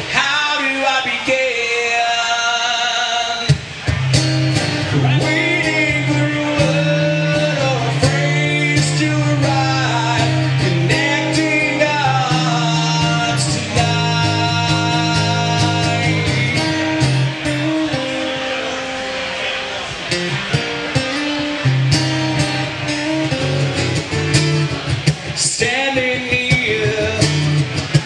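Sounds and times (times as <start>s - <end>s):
man singing: 0.0s - 3.6s, 4.9s - 18.4s, 25.3s - 28.0s
strummed acoustic guitar: 0.0s - 28.0s.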